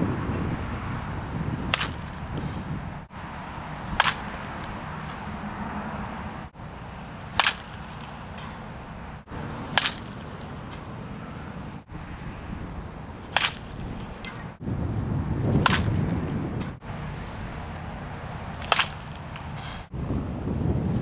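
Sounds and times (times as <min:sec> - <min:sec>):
metal bat hitting ball: 0:01.6 - 0:02.2, 0:03.8 - 0:05.4, 0:07.2 - 0:08.8, 0:09.6 - 0:10.9, 0:13.2 - 0:14.5, 0:15.6 - 0:16.8, 0:18.5 - 0:19.8.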